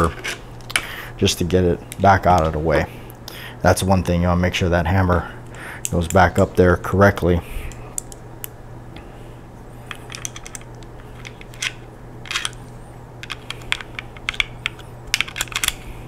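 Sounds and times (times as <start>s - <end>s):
metallic clicks of pistol parts: 9.9s - 15.8s.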